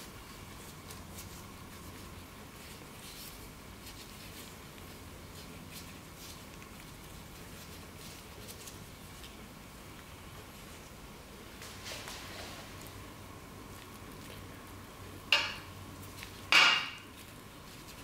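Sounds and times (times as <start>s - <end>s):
hands rustling and squishing filling: 0.0s - 18.0s
low steady hum: 0.0s - 18.0s.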